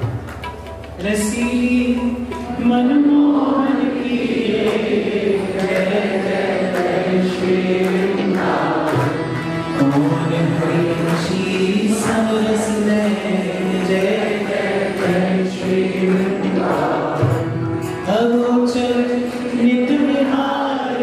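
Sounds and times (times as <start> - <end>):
voices chanting together: 3.2 - 9.3, 10.4 - 17.5.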